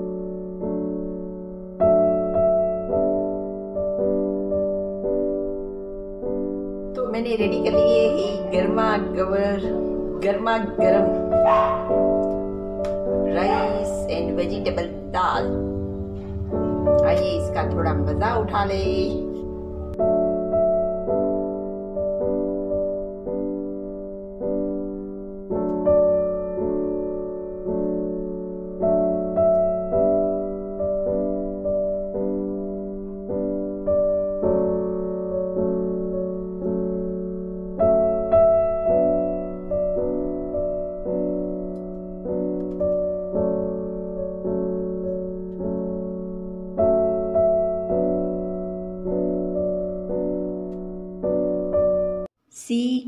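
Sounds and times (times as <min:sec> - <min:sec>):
soft piano chords: 0:00.0 - 0:52.3
held low piano note: 0:07.0 - 0:20.8.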